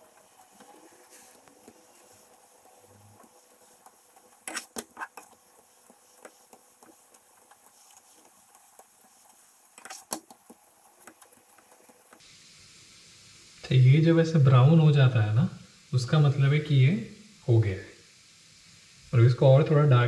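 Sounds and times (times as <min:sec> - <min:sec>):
spatula scraping frying pan: 0:00.0 - 0:12.2
faint steady background noise: 0:00.0 - 0:20.0.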